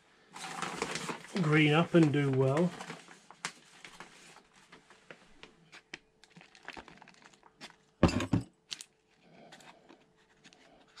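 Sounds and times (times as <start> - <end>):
compost and plastic trays rustling: 0.4 - 4.8.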